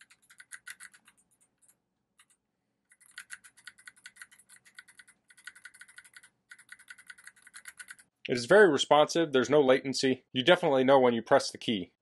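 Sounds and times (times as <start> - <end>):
clicky keyboard typing: 0.0 - 8.1.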